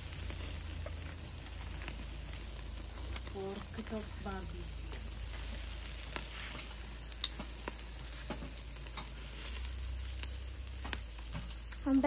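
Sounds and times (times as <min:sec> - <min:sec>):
meat sizzling on charcoal grill: 0:00.0 - 0:12.0
metal tongs clicking on grate: 0:08.5 - 0:09.2.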